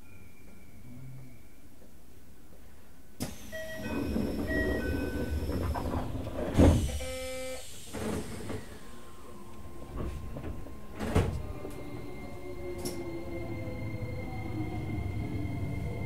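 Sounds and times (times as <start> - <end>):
sliding doors shutting with thud: 3.2 - 8.9, 9.8 - 11.9
train door chime: 3.3 - 6.1.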